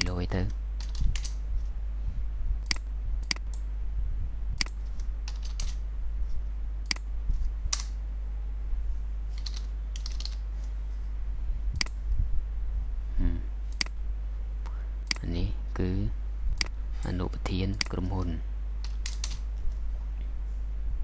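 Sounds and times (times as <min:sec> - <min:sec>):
low hum: 0:00.0 - 0:21.0
keyboard typing: 0:04.6 - 0:05.8, 0:09.3 - 0:10.4, 0:18.8 - 0:19.4.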